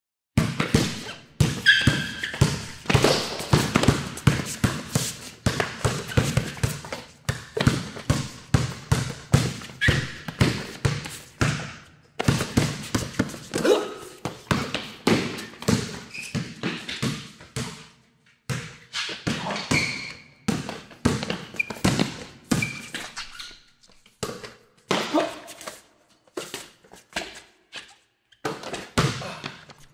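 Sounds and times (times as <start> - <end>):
basketball bouncing on court: 0.4 - 17.9, 18.5 - 23.0, 28.4 - 29.6.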